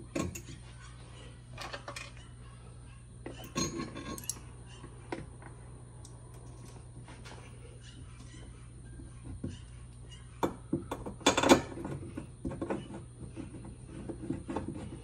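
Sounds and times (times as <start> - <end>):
steady low hum: 0.0 - 15.0
metal bolt clinking on metal: 3.3 - 4.4.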